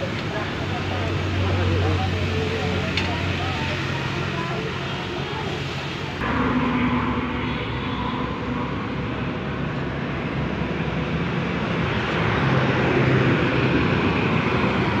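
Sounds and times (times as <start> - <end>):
mechanical drone with low hum: 6.2 - 15.0.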